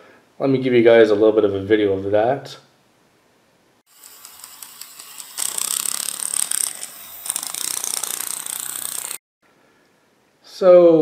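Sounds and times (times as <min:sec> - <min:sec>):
model train gear whirring: 0:03.9 - 0:09.2
wheels clicking: 0:03.9 - 0:09.2.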